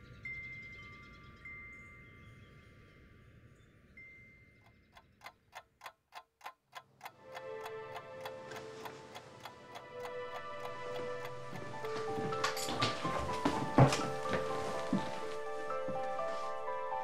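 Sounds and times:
steady ticking: 4.6s - 12.7s
sustained music tones: 7.0s - 17.0s.

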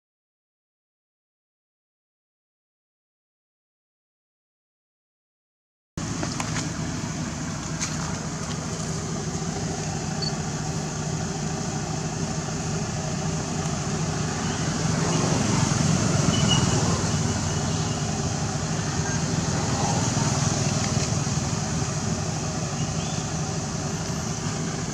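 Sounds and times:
outdoor background hiss and rumble: 6.0s - 24.9s.

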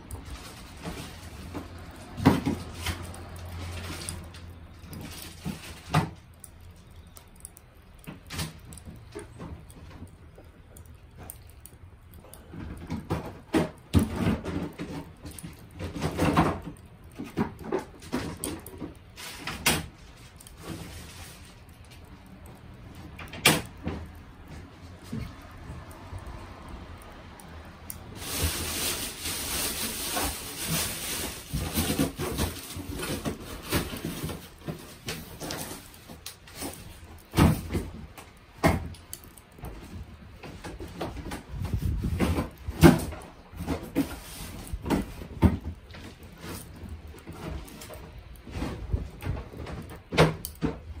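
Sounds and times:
hard objects knocking and clattering: 0.6s - 4.4s, 12.2s - 19.9s.

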